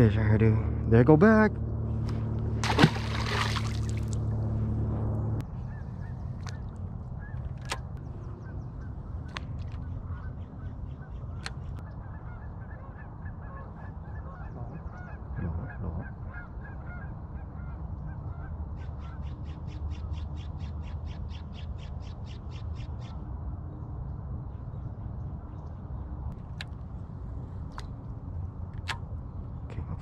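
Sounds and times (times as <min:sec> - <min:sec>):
low rumble: 0:00.0 - 0:10.2.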